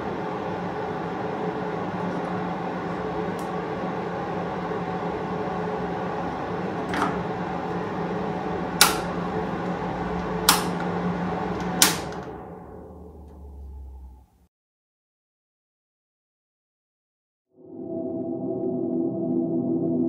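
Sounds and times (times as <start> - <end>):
fan heater running: 0.0 - 14.4
fan spinning down: 0.0 - 14.5.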